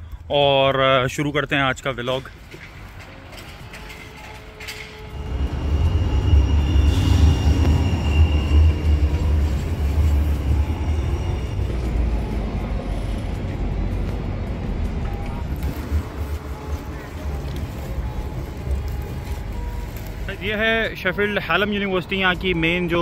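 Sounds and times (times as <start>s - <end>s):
tram wheels rumbling on rails: 0.8s - 23.0s
thin high whine: 5.2s - 11.8s.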